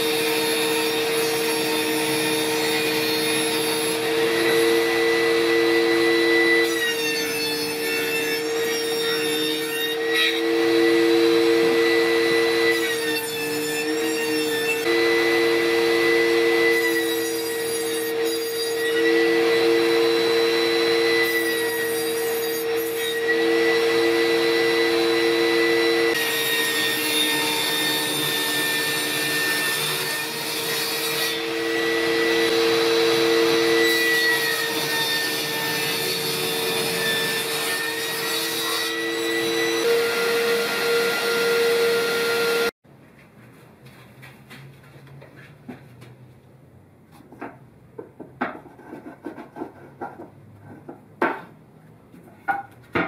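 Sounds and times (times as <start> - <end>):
table saw motor whine: 0.1 - 13.2, 14.0 - 30.1, 31.1 - 42.8.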